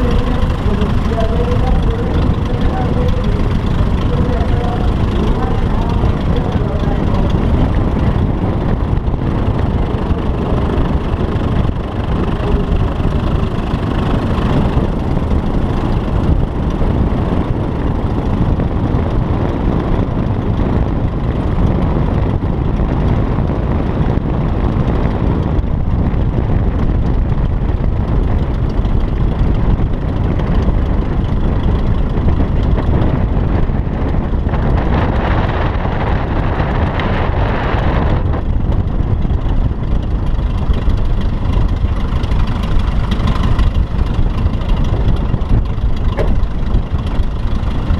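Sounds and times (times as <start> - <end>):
engine rumble: 0.0 - 47.9
wind buffeting microphone: 0.0 - 47.9.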